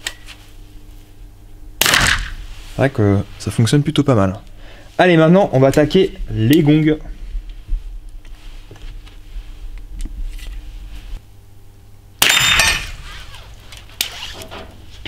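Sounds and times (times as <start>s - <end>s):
suppressed rifle shot: 1.8s - 2.4s
bullet ringing steel gong: 12.2s - 13.0s.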